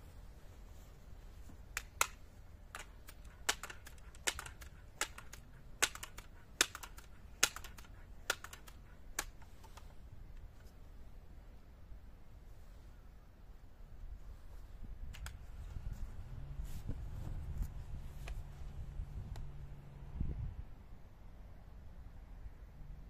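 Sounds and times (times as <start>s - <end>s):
air rifle pump arm clacking: 1.8s - 9.8s.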